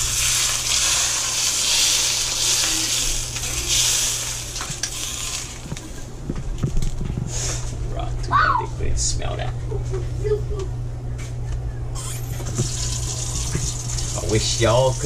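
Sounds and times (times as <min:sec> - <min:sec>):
hot oil sizzling and crackling: 0:00.0 - 0:06.1, 0:12.0 - 0:15.0.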